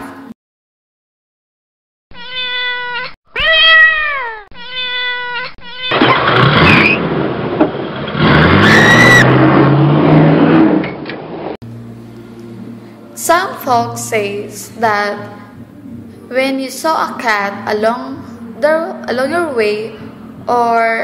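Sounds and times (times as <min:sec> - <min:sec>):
cat meowing: 0:02.1 - 0:06.2
loud rough noise: 0:05.9 - 0:12.0.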